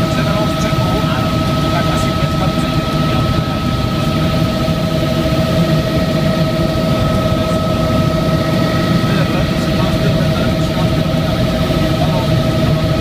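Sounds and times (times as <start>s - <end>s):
helicopter rotor and engine rumble: 0.0s - 13.0s
high whine: 0.0s - 13.0s.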